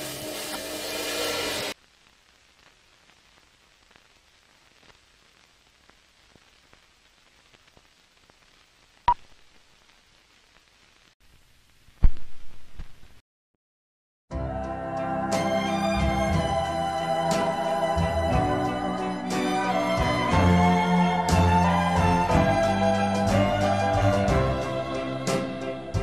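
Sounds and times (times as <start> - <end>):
faint crackle with ticks: 1.8 - 12.1.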